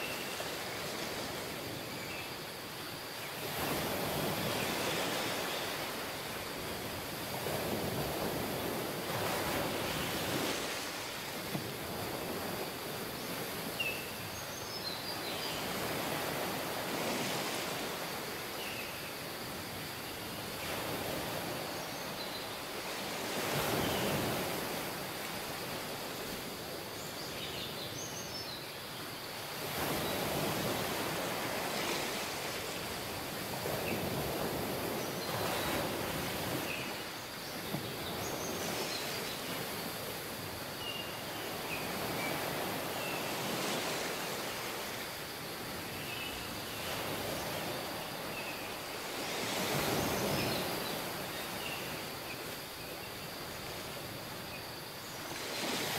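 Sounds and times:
waves washing onto beach: 0:00.0 - 0:55.9.

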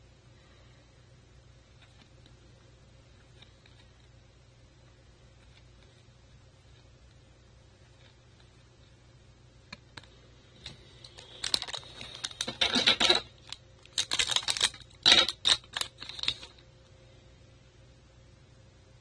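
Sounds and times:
foil wrapper crinkling: 0:11.0 - 0:16.6.

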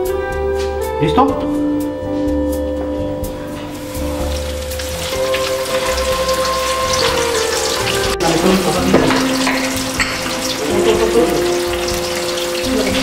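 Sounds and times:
music with long held notes: 0:00.0 - 0:13.0
oil bubbling and sizzling: 0:03.5 - 0:13.0.

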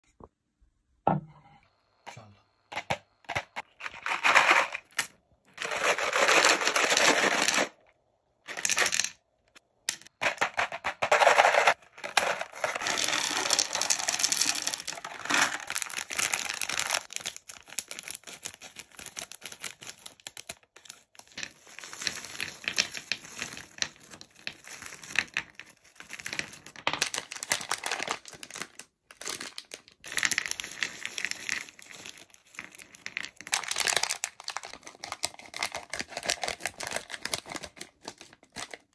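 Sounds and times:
candies clattering onto a platter: 0:02.7 - 0:07.8, 0:08.4 - 0:09.2, 0:09.9 - 0:38.9
candy packaging tearing and crinkling: 0:03.5 - 0:07.9, 0:10.2 - 0:38.9
plastic bag crinkling: 0:05.6 - 0:07.8, 0:10.3 - 0:22.6.

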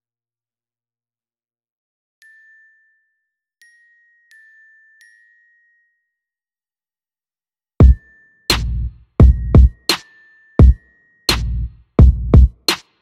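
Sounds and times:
soft bell-like notes: 0:02.2 - 0:06.6, 0:07.8 - 0:12.3.

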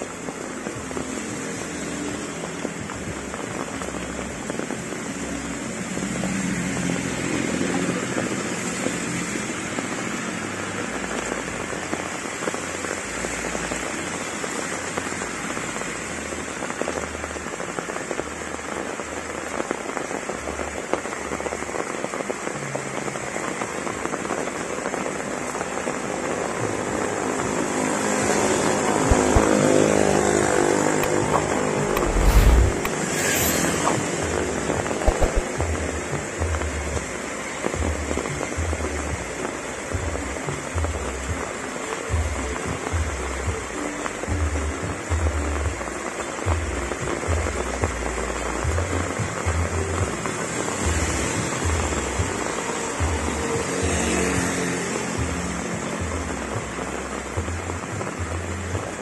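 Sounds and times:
heavy rain on road: 0:00.0 - 0:59.0
tyres hissing through water: 0:00.0 - 0:59.0
vehicle engine approaching: 0:28.7 - 0:35.5
sharp burst: 0:31.8 - 0:34.3.

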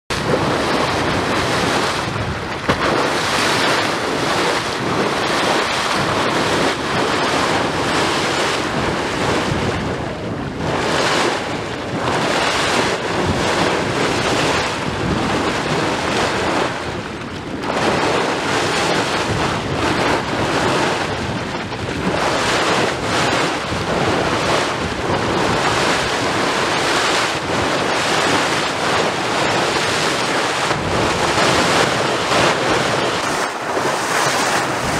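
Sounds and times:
water churning and splashing: 0:00.1 - 0:34.9
wind buffeting microphone: 0:00.1 - 0:34.9.

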